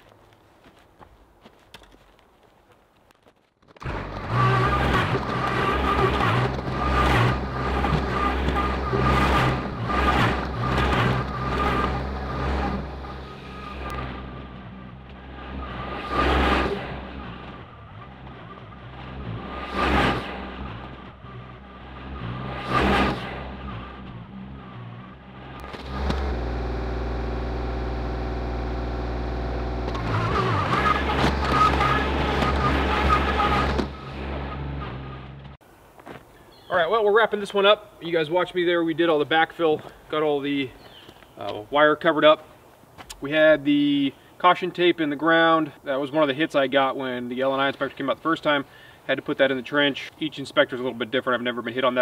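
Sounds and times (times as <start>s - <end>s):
tractor diesel engine running: 3.8s - 35.6s.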